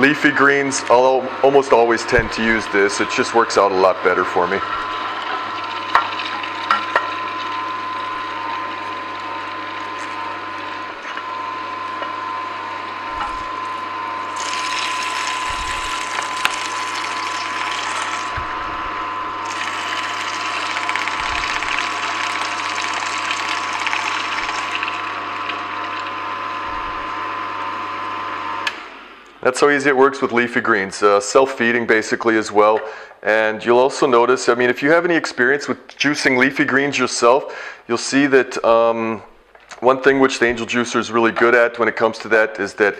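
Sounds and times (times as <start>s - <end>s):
juicer motor whining: 0.0s - 31.2s
juicer crushing greens crunch: 0.8s - 29.0s.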